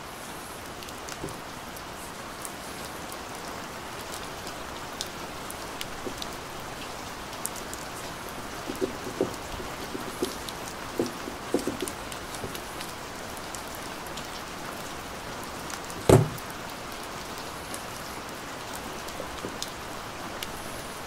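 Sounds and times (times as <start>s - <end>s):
steady rain-like hiss: 0.0s - 21.0s
hands tapping cardboard box: 8.6s - 12.6s.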